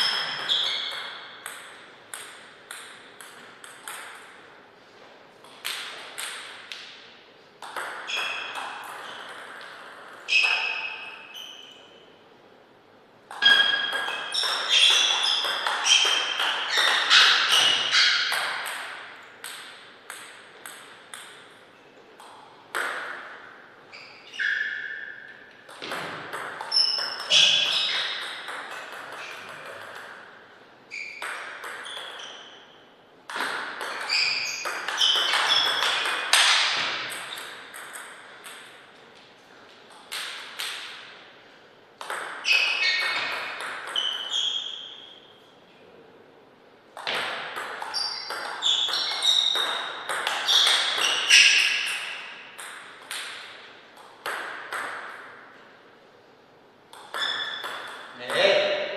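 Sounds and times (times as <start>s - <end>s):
table tennis ball clicking: 31.2s - 32.2s.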